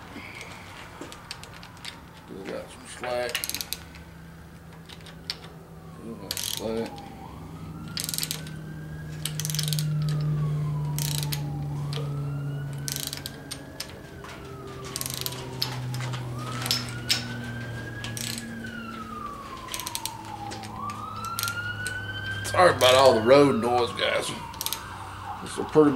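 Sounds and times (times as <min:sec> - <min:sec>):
road traffic drone: 0:00.0 - 0:25.9
siren wailing: 0:00.3 - 0:25.9
socket ratchet clicking: 0:03.3 - 0:04.1, 0:06.3 - 0:07.1, 0:07.8 - 0:08.6, 0:09.2 - 0:12.1, 0:12.7 - 0:13.9, 0:14.9 - 0:17.3, 0:18.0 - 0:18.6, 0:19.7 - 0:22.0, 0:24.5 - 0:24.9.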